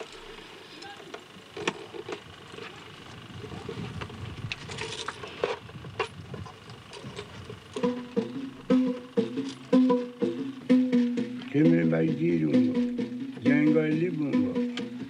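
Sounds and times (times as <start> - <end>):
plucked string notes: 7.8 - 15.0.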